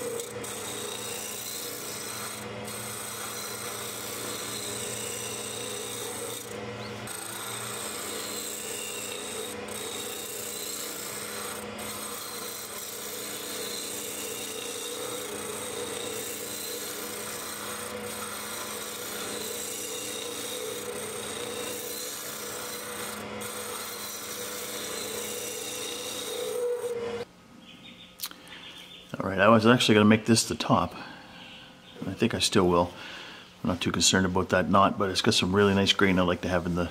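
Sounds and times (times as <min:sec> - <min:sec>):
lathe tool scraping wood: 0:00.0 - 0:27.3.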